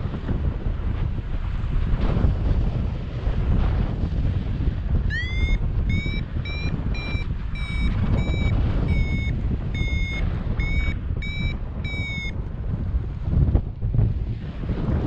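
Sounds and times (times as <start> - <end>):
wind noise on microphone: 0.0 - 15.0
variometer short beeps: 5.1 - 12.4.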